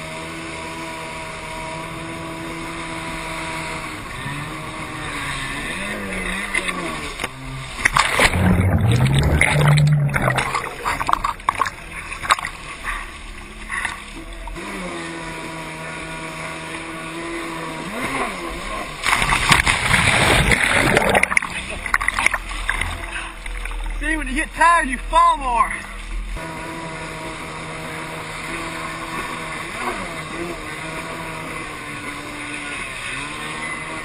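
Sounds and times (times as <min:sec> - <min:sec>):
jet ski engine running: 0:00.0 - 0:34.0
water splash: 0:05.3 - 0:14.7, 0:17.9 - 0:24.0.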